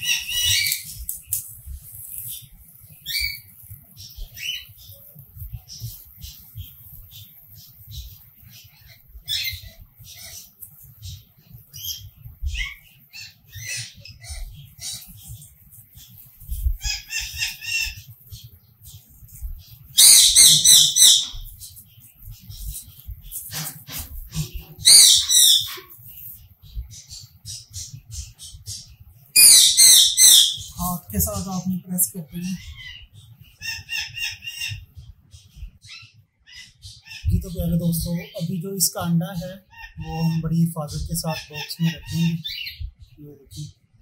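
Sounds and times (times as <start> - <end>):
wood shavings rustling: 0.0 - 8.0, 20.4 - 26.4
cockatiel screeching: 20.0 - 21.4, 24.4 - 25.9, 29.4 - 30.7.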